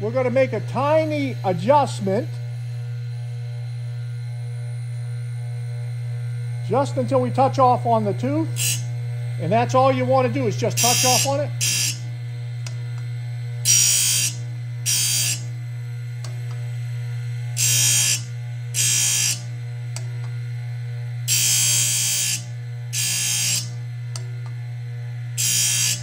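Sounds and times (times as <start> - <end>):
electric motor humming: 0.0 - 26.0
grinding wheel on saw teeth: 6.6 - 12.0, 13.6 - 15.5, 17.6 - 19.4, 21.3 - 23.7, 25.4 - 26.0.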